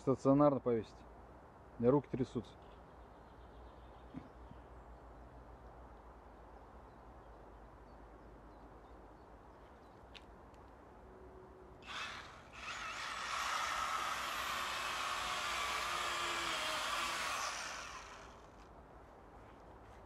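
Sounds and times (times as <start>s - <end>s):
power tool motor running: 11.8s - 18.6s.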